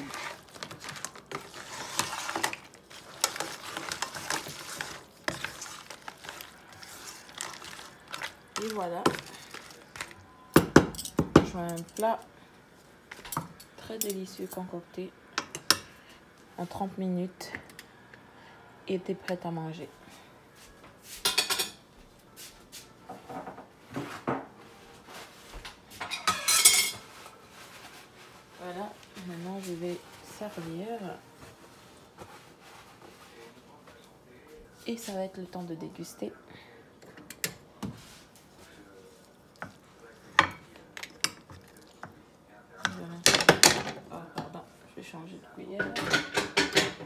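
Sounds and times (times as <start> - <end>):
utensils clicking on metal pot: 0.0 - 9.7.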